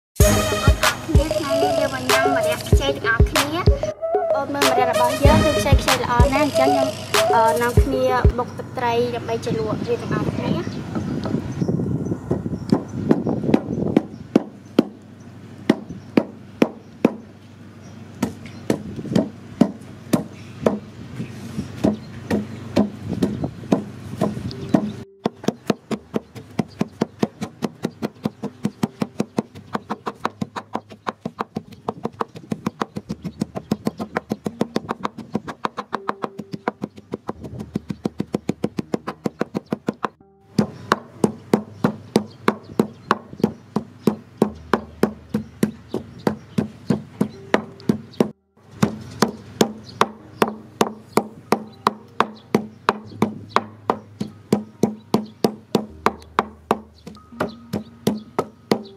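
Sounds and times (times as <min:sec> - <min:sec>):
wooden pestle pounding in mortar: 0:13.1 - 0:15.0, 0:15.7 - 0:17.2, 0:18.2 - 0:20.9, 0:21.8 - 0:58.9.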